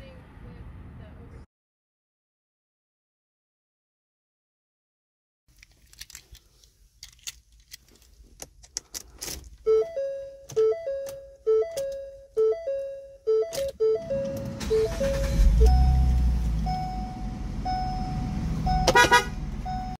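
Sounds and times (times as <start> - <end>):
keys jangling and clicking: 5.5 - 9.6
dashboard warning chime: 9.6 - 19.9.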